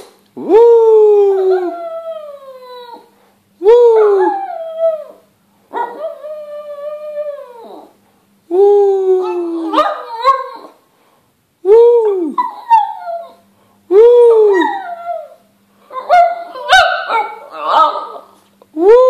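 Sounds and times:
dog howling: 0.5 - 8.0, 14.0 - 18.3.

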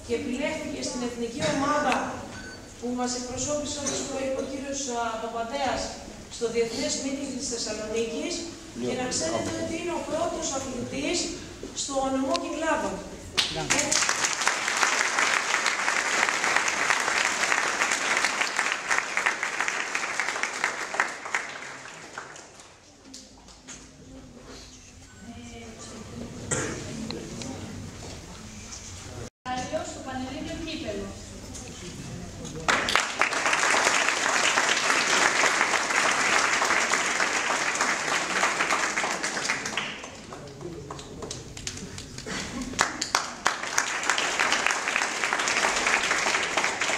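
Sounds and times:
audience applauding: 13.4 - 22.7, 32.7 - 46.9.

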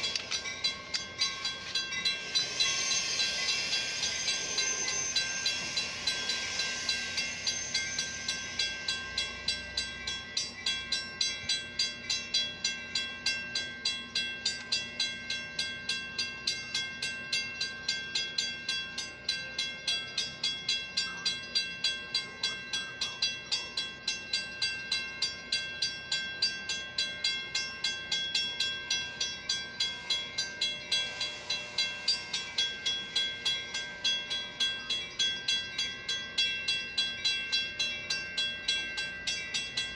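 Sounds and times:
hiss: 0.0 - 9.9, 29.1 - 34.6
railroad crossing bell ringing: 0.0 - 39.9.

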